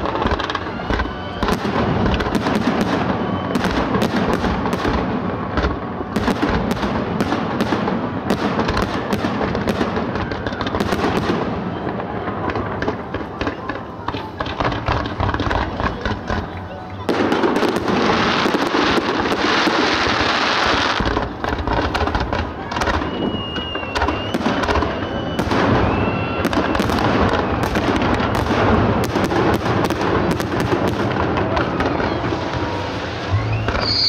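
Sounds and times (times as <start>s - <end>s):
firework whistles: 0.0s - 6.8s, 16.9s - 34.0s
fireworks bangs and crackling: 0.0s - 34.0s.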